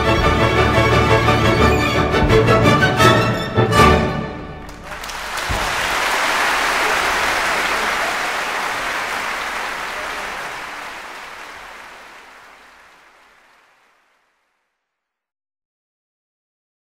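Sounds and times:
applause: 4.6s - 14.8s.

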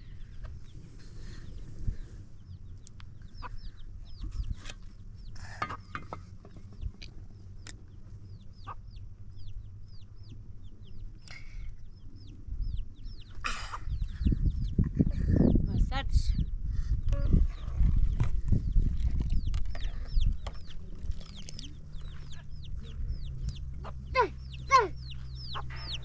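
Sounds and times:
chicks peeping: 0.0s - 26.0s
low rumble: 6.2s - 26.0s.

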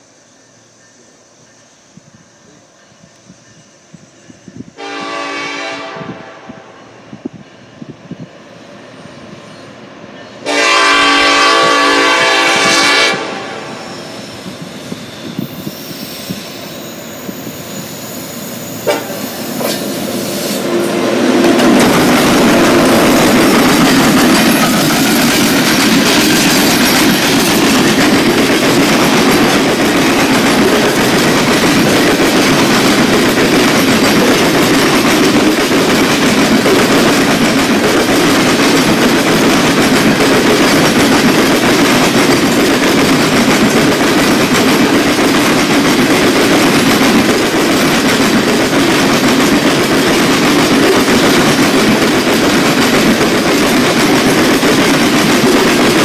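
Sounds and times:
locomotive horn blast: 4.8s - 6.8s, 10.4s - 13.9s, 18.8s - 21.8s
train wheels clickety-clack: 9.5s - 56.0s
locomotive engine rumble: 18.8s - 38.2s.

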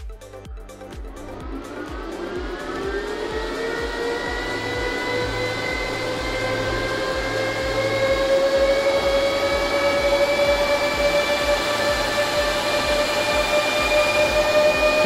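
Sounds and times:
cooling fans whirring: 0.1s - 15.0s.

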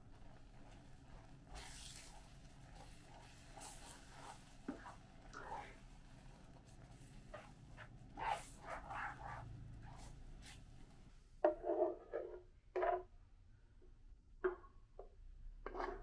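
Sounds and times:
spatula stirring sauce in pan: 0.0s - 11.1s.

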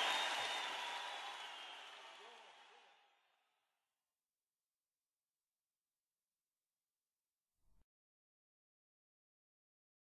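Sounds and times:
audience applause: 0.0s - 2.9s.

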